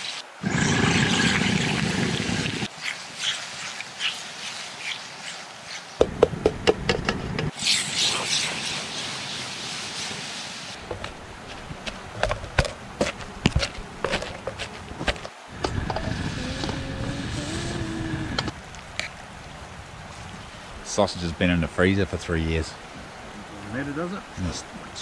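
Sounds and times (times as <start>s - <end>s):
high hiss: 7.5s - 10.8s, 15.5s - 18.6s
wooden stick scraping metal pot: 10.8s - 17.0s.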